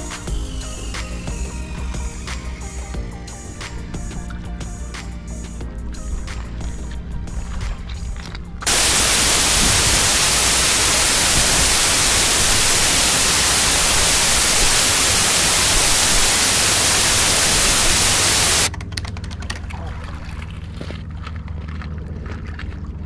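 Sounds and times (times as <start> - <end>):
loud steady hiss: 0.0 - 5.6, 8.6 - 18.7.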